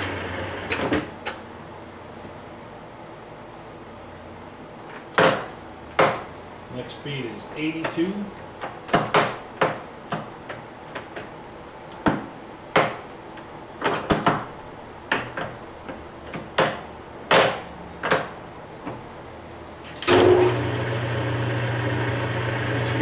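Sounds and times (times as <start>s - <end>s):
lathe running with steady hum: 0.0s - 0.7s, 20.1s - 23.0s.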